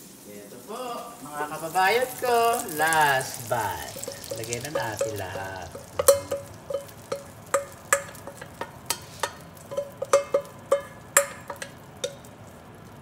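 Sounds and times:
spatula knocking on metal bowl: 4.0 - 12.3.

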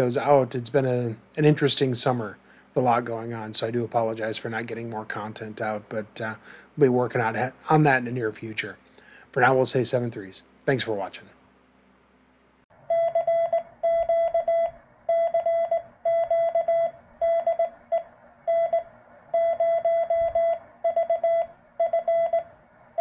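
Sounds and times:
morse code beeps: 12.9 - 23.0.

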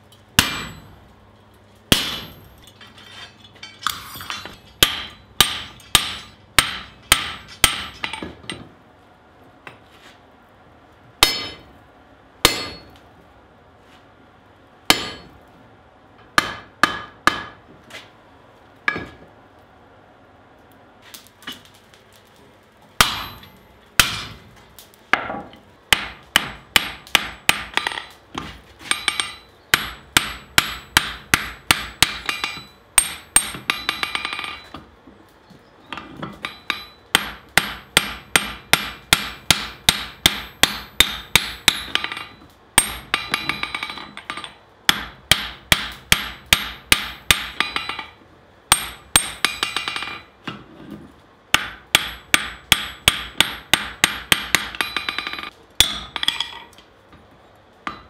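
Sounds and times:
hammer clanging on anvil: 0.4 - 1.0, 1.9 - 8.7, 11.2 - 11.7, 12.5 - 13.0, 14.9 - 15.3, 23.0 - 24.4, 25.2 - 34.8, 35.9 - 50.3, 51.6 - 56.7.

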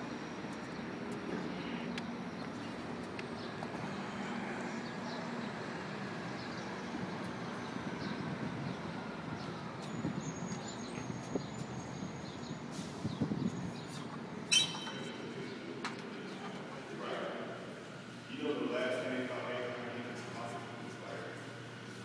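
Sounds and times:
traffic noise: 0.0 - 22.0.

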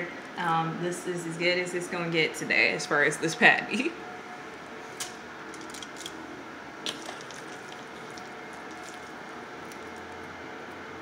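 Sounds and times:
faint background hum: 0.0 - 11.0
hands squishing raw meat: 6.9 - 10.1.

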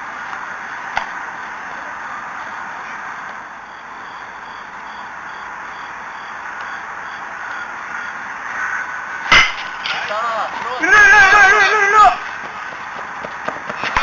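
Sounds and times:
steady outdoor hiss: 0.0 - 14.0
baseball striking sharp crack: 0.9 - 1.2, 9.3 - 10.1.

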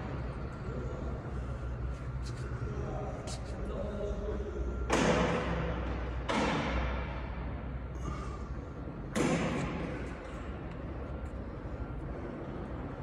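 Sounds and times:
steady low hum: 0.0 - 13.0
heavy thuds with echo: 4.9 - 7.6, 9.0 - 10.1.

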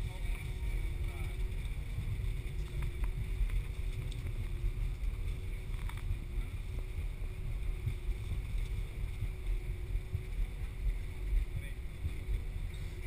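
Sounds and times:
jet engine hum and whine: 0.0 - 13.0
low rumble of wheels: 0.0 - 13.0
faint ticks: 1.4 - 6.5.

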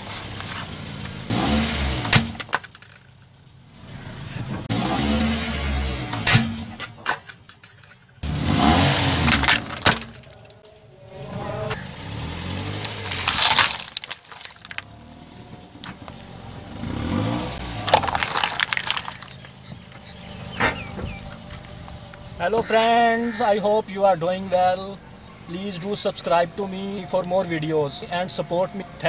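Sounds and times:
car low rumble: 0.0 - 29.0
plastic cracking under tyre: 2.1 - 3.2, 9.2 - 10.4, 12.8 - 14.9, 17.7 - 22.2
plastic cups crunching and popping: 12.8 - 14.9, 17.6 - 20.1.

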